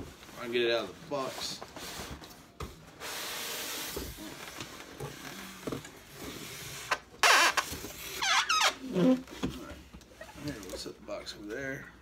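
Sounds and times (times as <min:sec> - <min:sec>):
squeaks of foam rubbing: 0:06.4 - 0:09.3.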